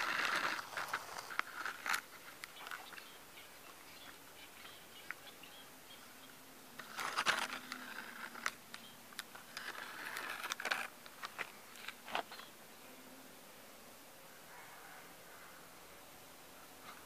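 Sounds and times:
stick scraping dry dirt: 0:00.0 - 0:02.9, 0:06.8 - 0:12.4.

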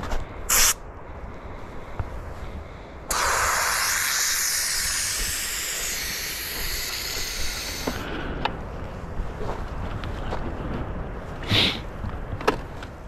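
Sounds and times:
pressure cooker steam hissing: 0:03.1 - 0:08.0.

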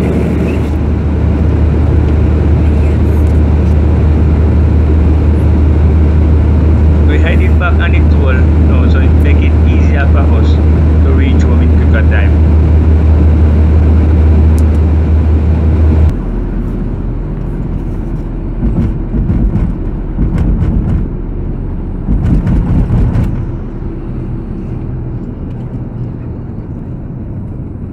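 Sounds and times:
car road and wind noise: 0:00.0 - 0:27.9
heavy low rumble: 0:00.0 - 0:27.9
scattered thumps: 0:18.6 - 0:21.3, 0:22.0 - 0:23.6.

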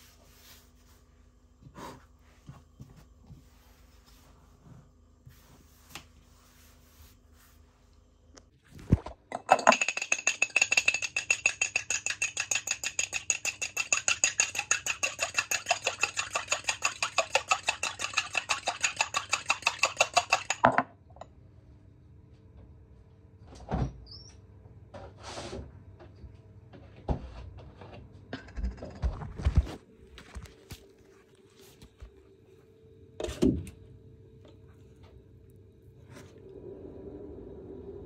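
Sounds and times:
utensil whisking in a bowl: 0:09.5 - 0:20.6
scattered knocks and taps: 0:09.6 - 0:20.8.

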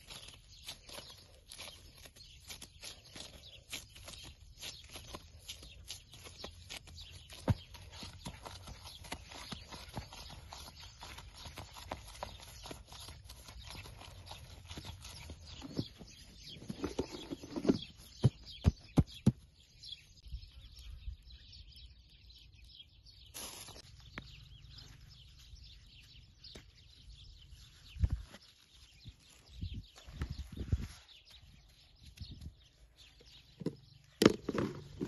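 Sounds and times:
hands kneading and patting dough: 0:00.0 - 0:17.7
plastic glove rustles: 0:23.3 - 0:24.0.

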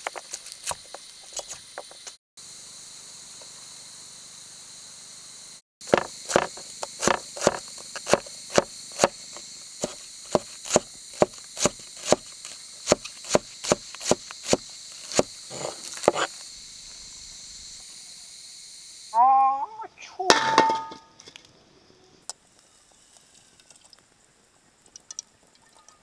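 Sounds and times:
insects trilling: 0:00.0 - 0:25.9
cleaver chopping on wooden board: 0:05.8 - 0:09.2, 0:09.8 - 0:16.3.

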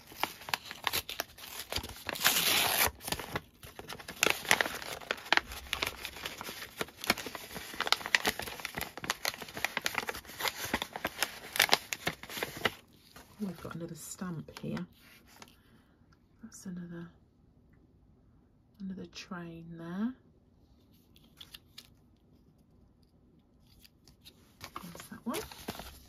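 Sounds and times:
paper envelope rustling: 0:00.0 - 0:13.8, 0:23.7 - 0:26.0.

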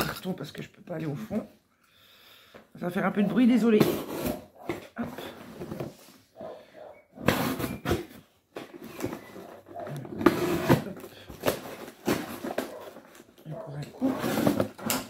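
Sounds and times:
cardboard box being cut and torn: 0:10.0 - 0:13.0.

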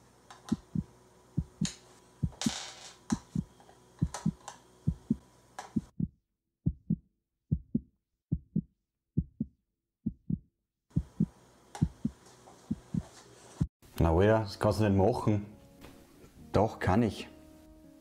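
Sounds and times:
heartbeat thumps: 0:00.5 - 0:05.2, 0:05.8 - 0:13.7.

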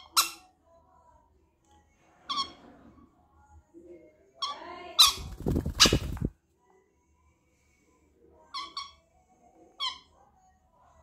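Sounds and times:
parrots squawking: 0:04.4 - 0:06.2
wings rustling: 0:05.0 - 0:06.3.

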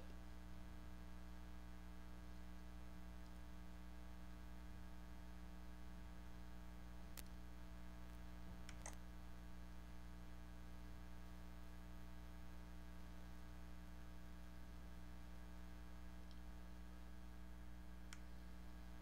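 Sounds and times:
low electrical hum: 0:00.0 - 0:19.0
computer mouse clicks: 0:08.6 - 0:09.0, 0:16.2 - 0:16.4.

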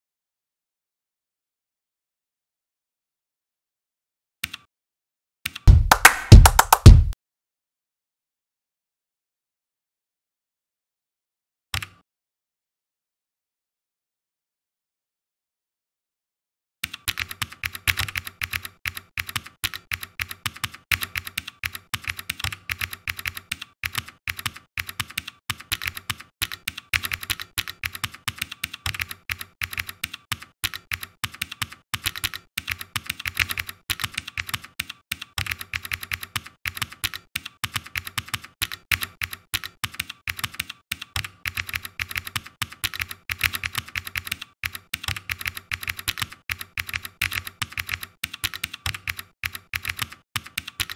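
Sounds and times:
computer keyboard typing: 0:05.5 - 0:07.1, 0:16.8 - 0:50.9.

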